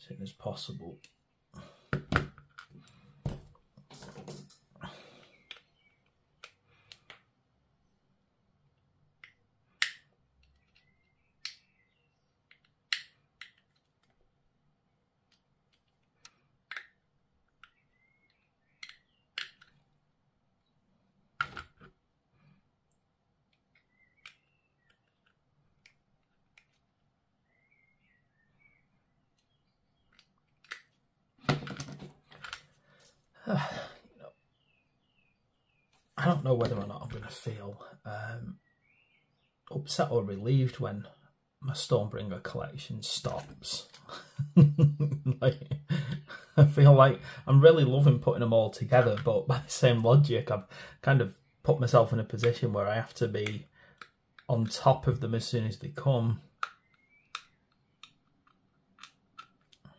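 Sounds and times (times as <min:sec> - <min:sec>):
plastic parts clicking: 0:05.2 - 0:07.2, 0:09.2 - 0:11.7, 0:12.4 - 0:14.3, 0:15.2 - 0:20.0, 0:21.4 - 0:22.0, 0:22.9 - 0:26.9, 0:29.3 - 0:32.7, 0:53.4 - 0:54.8, 0:56.5 - 0:59.9.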